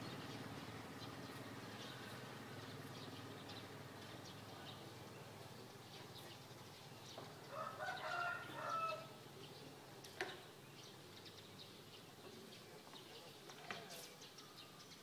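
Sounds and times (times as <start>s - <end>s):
small birds chirping: 0.0s - 15.0s
rooster crowing: 7.5s - 9.1s.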